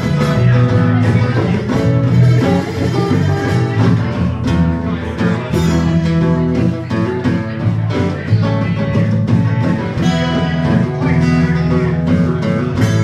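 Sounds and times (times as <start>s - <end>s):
acoustic guitars strumming: 0.0s - 13.0s
bongos: 0.0s - 13.0s
drum kit: 0.0s - 13.0s.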